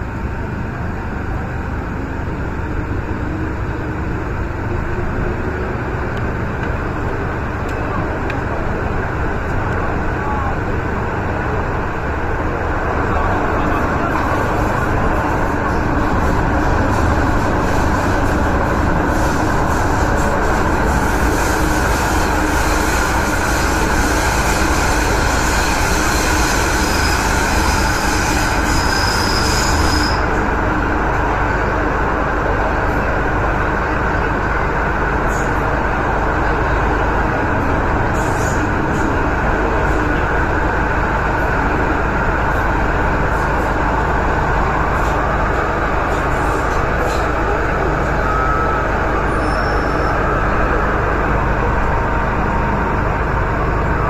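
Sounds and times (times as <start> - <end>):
train rumbling in tunnel: 0.0 - 54.0
high wheel squeal: 13.9 - 30.4, 44.6 - 51.7.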